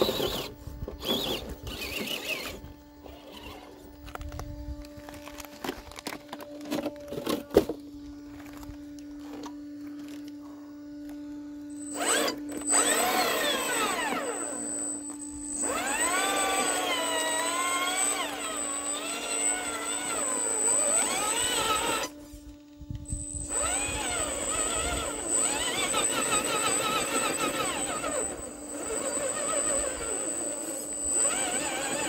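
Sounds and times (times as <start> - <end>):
rc car electric motor whining: 0.0 - 32.0.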